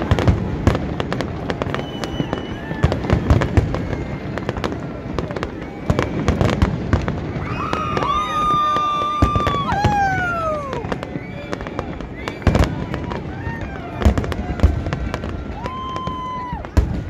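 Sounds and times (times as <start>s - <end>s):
fireworks bursts and crackles: 0.0s - 17.0s
sustained whistling tone: 1.6s - 2.8s.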